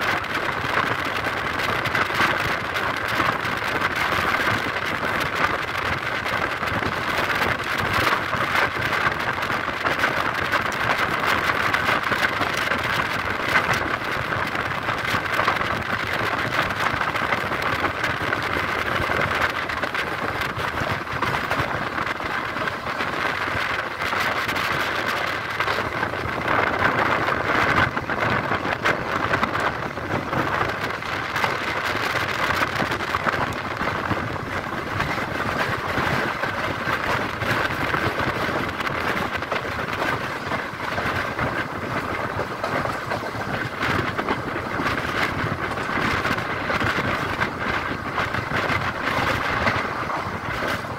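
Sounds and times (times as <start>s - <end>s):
train wheels rushing on track: 0.0s - 50.9s
wind rushing: 0.0s - 50.9s.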